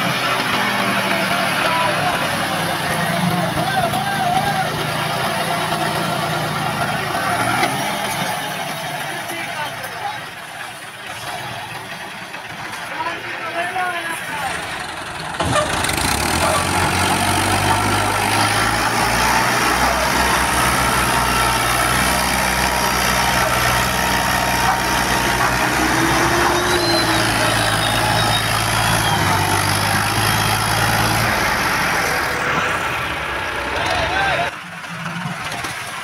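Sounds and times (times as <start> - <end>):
tractor engines under heavy load: 0.0 - 36.0.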